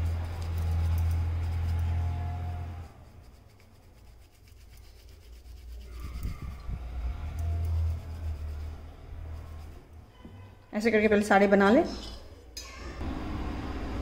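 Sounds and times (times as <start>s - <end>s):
hands rubbing dough: 0.0s - 10.1s.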